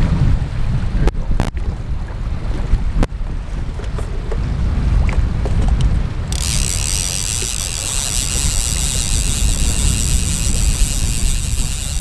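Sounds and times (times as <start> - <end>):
wind rumble on microphone: 0.0 - 12.0
fishing reel ratchet whirring: 6.3 - 12.0.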